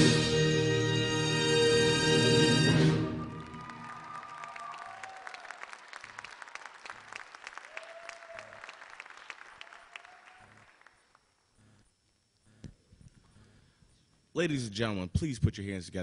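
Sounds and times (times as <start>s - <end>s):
people cheering: 2.9s - 11.0s
audience applause: 3.0s - 11.2s.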